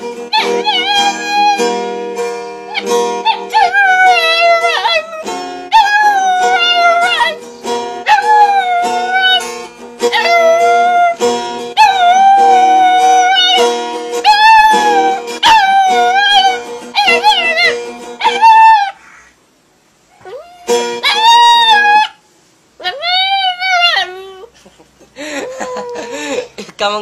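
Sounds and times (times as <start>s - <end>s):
acoustic guitar chords: 0.0s - 18.6s, 20.6s - 22.6s
dog howling: 0.3s - 1.7s, 2.7s - 7.4s, 8.0s - 9.5s, 10.1s - 11.2s, 11.8s - 13.6s, 14.2s - 19.0s, 20.2s - 22.2s, 22.8s - 24.5s, 25.5s - 26.3s.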